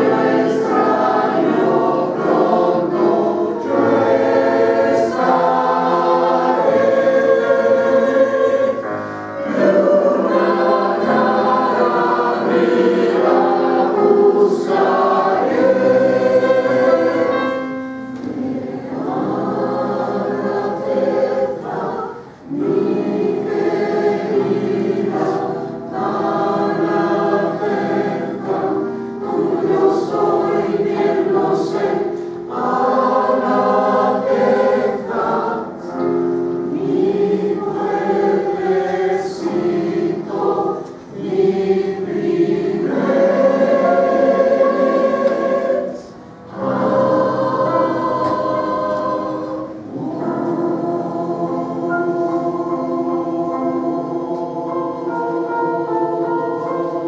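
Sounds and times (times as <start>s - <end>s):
mixed choir singing: 0.0s - 57.0s.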